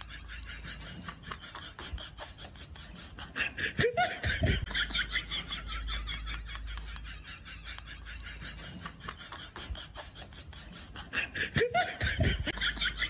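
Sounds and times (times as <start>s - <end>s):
laughter: 0.0s - 13.0s.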